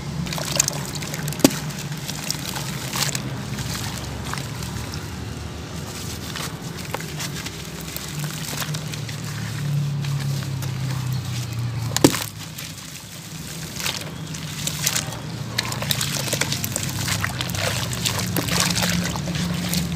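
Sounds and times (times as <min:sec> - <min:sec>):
hands sloshing through water: 0:00.2 - 0:19.9
wet sand chunks crumbling: 0:00.2 - 0:19.9.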